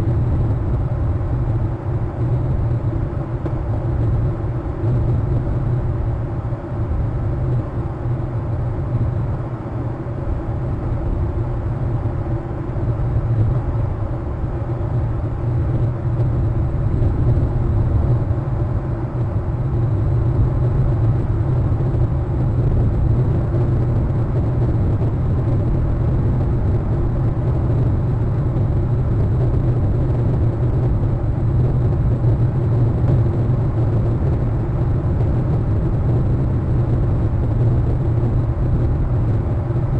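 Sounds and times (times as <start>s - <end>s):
steady low rumble: 0.0s - 39.9s.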